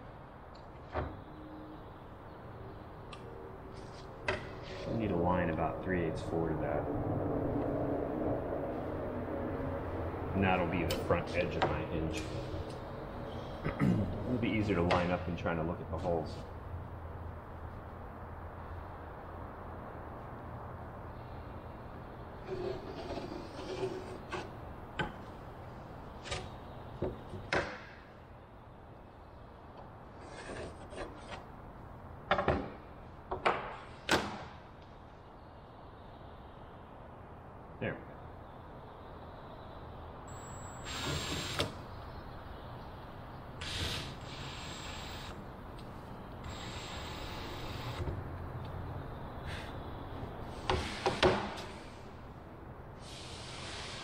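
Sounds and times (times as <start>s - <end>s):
tool scraping on board: 22.4s - 24.5s, 30.2s - 31.4s.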